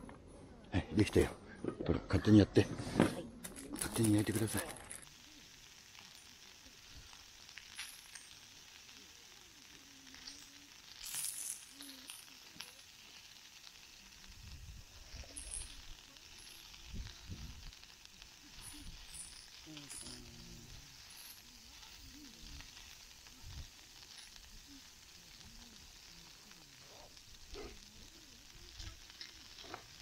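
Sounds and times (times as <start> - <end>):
meat sizzling in a frying pan: 3.5 - 30.0.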